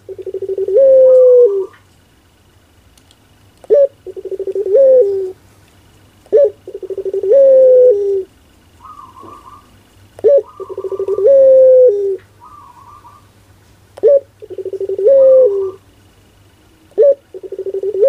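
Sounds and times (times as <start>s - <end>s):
dove cooing: 0.0s - 1.8s, 3.6s - 5.4s, 6.3s - 13.4s, 14.0s - 15.9s, 16.8s - 18.0s
higher trilling bird call: 0.1s - 1.8s, 3.7s - 5.4s, 6.3s - 13.3s, 14.0s - 15.9s.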